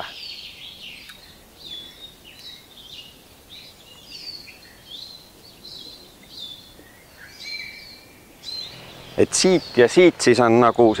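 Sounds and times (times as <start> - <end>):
birds chirping and whistling: 0.0 - 11.0.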